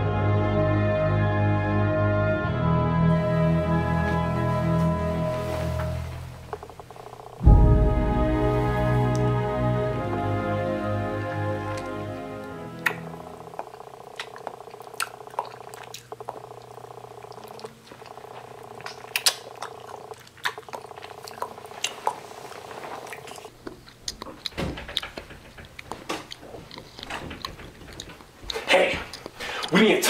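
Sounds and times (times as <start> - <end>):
steady low buzz: 2.7 - 18.8
mouth biting and sucking lemon: 17.6 - 24.2.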